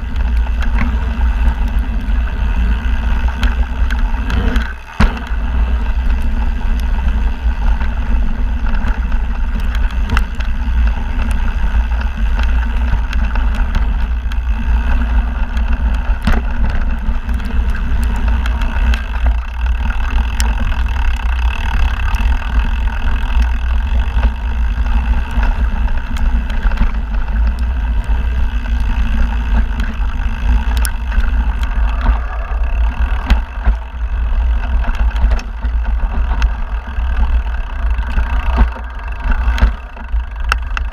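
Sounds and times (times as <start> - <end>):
bike clicks and rattles: 0.0 - 40.9
tyres rumbling on dirt: 0.0 - 40.9
wind on microphone: 21.9 - 40.9.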